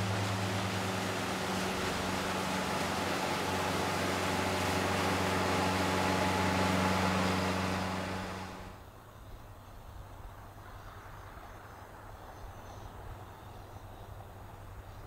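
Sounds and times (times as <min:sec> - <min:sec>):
boat wake rushing: 0:00.0 - 0:08.9
motorboat engine drone: 0:00.0 - 0:10.6.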